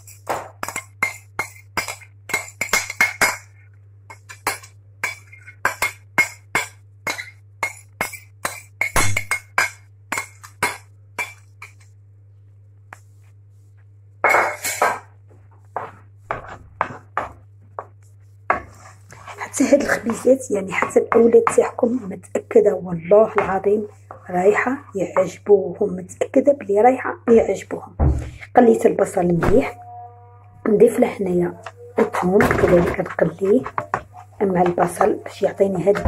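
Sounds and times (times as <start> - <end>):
wooden spoon knocking on a pan: 23.3 - 24.2, 32.1 - 35.2.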